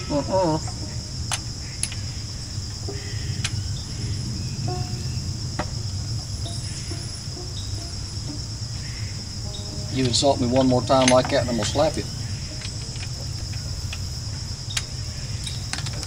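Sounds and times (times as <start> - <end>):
insects chirring: 0.0 - 16.0
low steady hum: 0.0 - 16.0
hand tools clicking on metal: 9.9 - 14.1.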